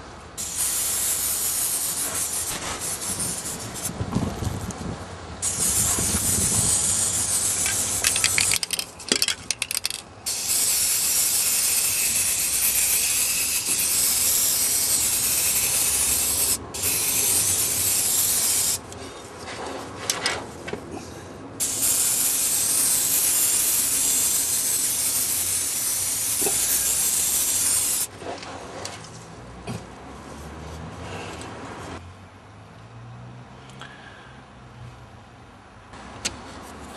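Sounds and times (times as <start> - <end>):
spray paint can hissing: 0.4 - 4.0, 5.4 - 18.9, 21.6 - 28.1
clicking and rattling: 7.6 - 10.1.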